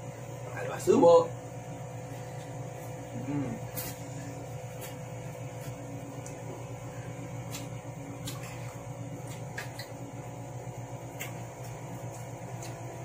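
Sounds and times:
appliance humming: 0:00.0 - 0:13.0
person chewing noodles: 0:02.1 - 0:10.4, 0:11.0 - 0:13.0.

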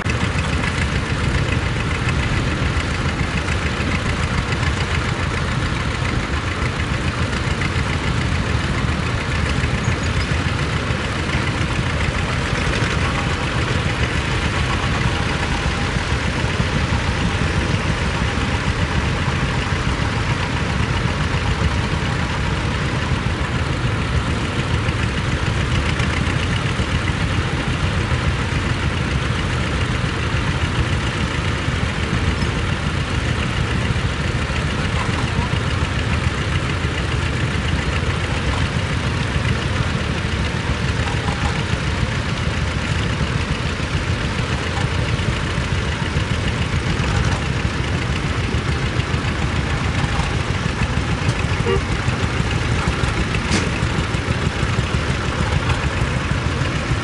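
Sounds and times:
tractor engines running: 0:00.0 - 0:57.0.

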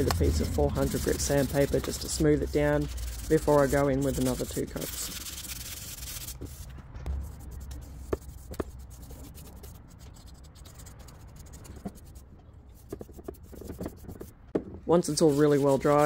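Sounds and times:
brush scratching on wood: 0:00.0 - 0:12.2, 0:12.8 - 0:14.3, 0:15.0 - 0:16.0
sandpaper rubbing on wood: 0:00.0 - 0:12.2, 0:15.0 - 0:16.0.

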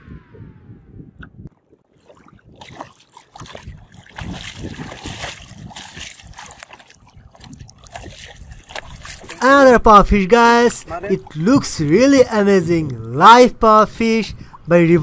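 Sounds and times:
water splashing against boat: 0:01.6 - 0:09.5.

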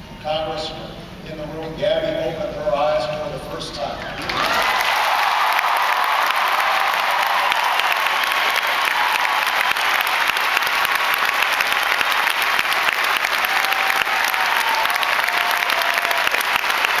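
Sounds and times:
crowd applauding: 0:04.2 - 0:17.0.

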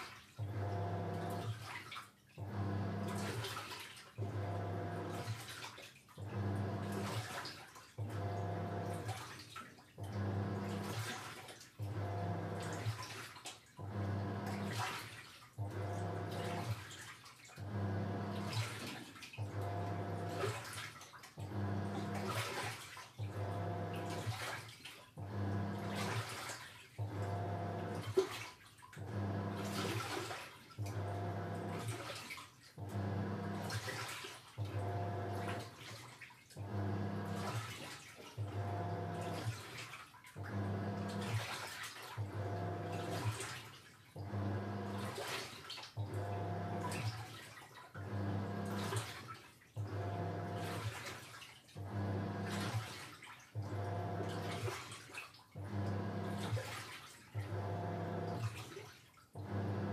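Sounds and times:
water sloshing in tub: 0:00.0 - 0:59.9
washing machine motor humming: 0:00.4 - 0:01.8, 0:02.4 - 0:05.5, 0:06.2 - 0:07.4, 0:08.0 - 0:09.2, 0:10.0 - 0:11.2, 0:11.8 - 0:13.1, 0:13.8 - 0:17.0, 0:17.6 - 0:24.5, 0:25.2 - 0:26.4, 0:27.0 - 0:28.4, 0:29.0 - 0:32.2, 0:32.8 - 0:36.0, 0:36.6 - 0:43.6, 0:44.2 - 0:45.4, 0:46.0 - 0:47.4, 0:48.0 - 0:49.2, 0:49.8 - 0:58.7, 0:59.4 - 0:59.9.

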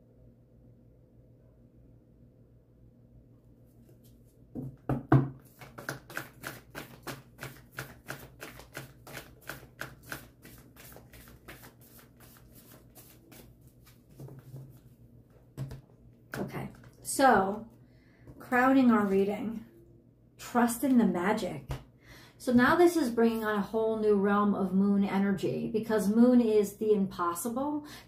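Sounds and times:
cards being shuffled: 0:05.4 - 0:14.9.

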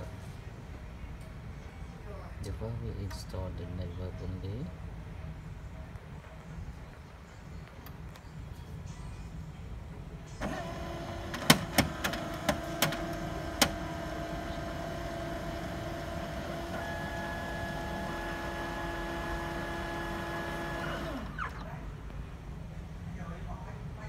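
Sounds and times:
printer clicks: 0:10.4 - 0:14.2
high printer tone: 0:10.4 - 0:21.6
printer motor whine: 0:10.4 - 0:21.6.

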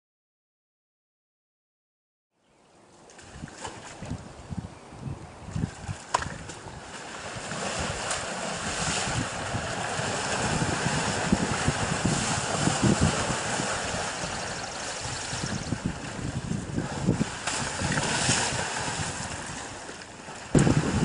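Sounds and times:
wind buffeting microphone: 0:03.2 - 0:21.0
elephants splashing through water: 0:05.8 - 0:21.0.

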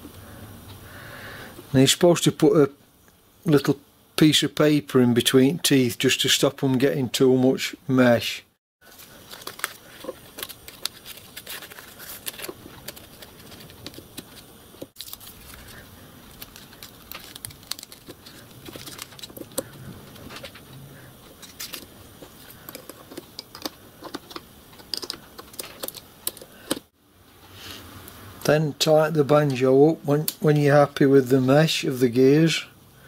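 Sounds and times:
paper rustling: 0:08.8 - 0:26.0.

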